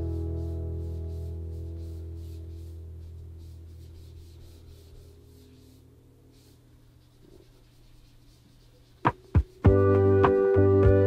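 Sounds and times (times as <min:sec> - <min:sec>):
background music: 0:00.0 - 0:03.5, 0:09.1 - 0:11.0
hand rubbing paint on paper: 0:00.0 - 0:10.6.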